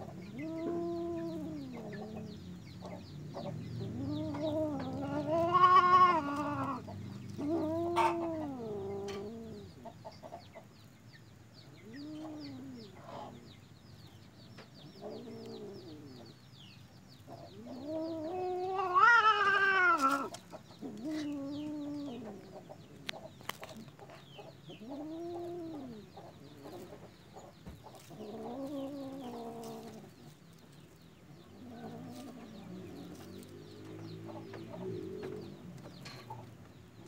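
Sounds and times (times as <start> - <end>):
cats yowling: 0.3 - 2.4, 3.8 - 9.8, 11.8 - 13.3, 17.5 - 22.6, 24.8 - 26.9, 28.0 - 30.2, 31.6 - 33.3.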